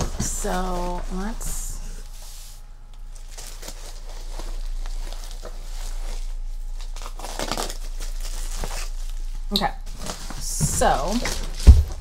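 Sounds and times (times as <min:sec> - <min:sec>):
packaging crinkling: 0:02.8 - 0:12.0.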